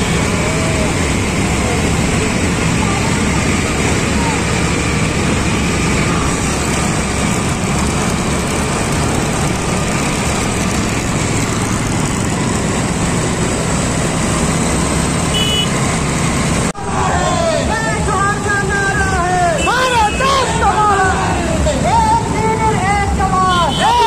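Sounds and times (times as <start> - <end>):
motorcycle engines running: 0.0 - 24.0.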